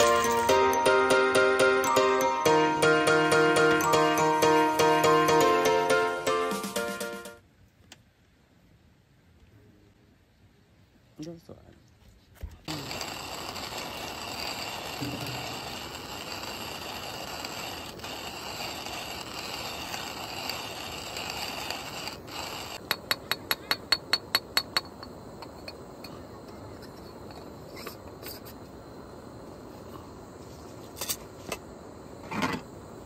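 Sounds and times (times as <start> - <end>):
coffee grinder grinding beans: 0.0 - 0.8, 12.7 - 22.8.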